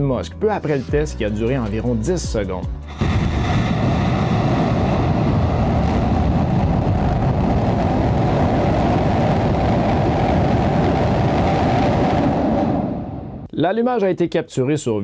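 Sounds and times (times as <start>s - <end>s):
rocket exhaust rumble: 2.9s - 13.5s.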